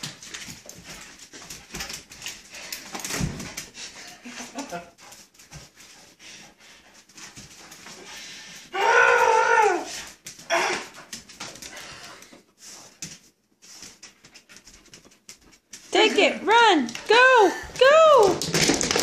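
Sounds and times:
dogs scuffling on tile floor: 0.0s - 19.0s
dog crying: 8.7s - 10.9s.

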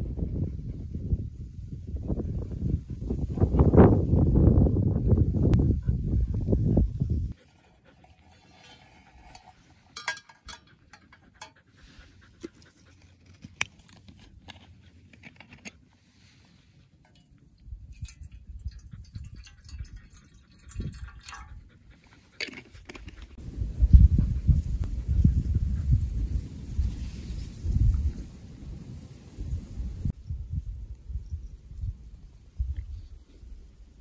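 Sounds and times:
wind rumble on microphone: 0.0s - 7.4s, 17.6s - 22.0s, 22.9s - 34.0s.

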